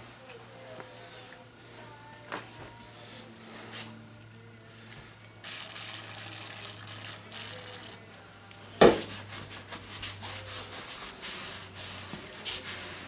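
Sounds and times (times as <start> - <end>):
cloth rag rubbing metal: 9.0 - 13.0.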